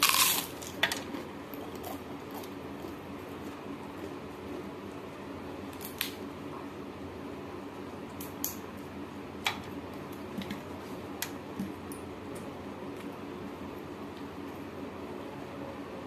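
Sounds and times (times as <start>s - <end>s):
crunching bites of crisp food: 0.0s - 4.9s
steady low hum: 0.0s - 16.0s.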